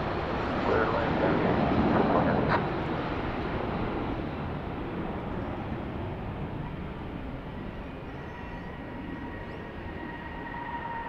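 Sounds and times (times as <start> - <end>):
jet engines at takeoff thrust: 0.0 - 11.0.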